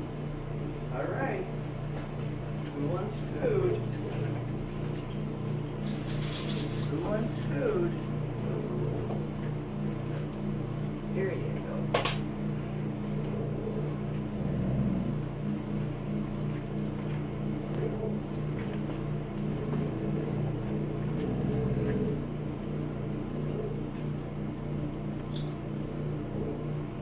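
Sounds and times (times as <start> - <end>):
steady low hum: 0.0 - 27.0
dog growling: 5.9 - 9.5, 13.1 - 16.1, 19.4 - 24.3.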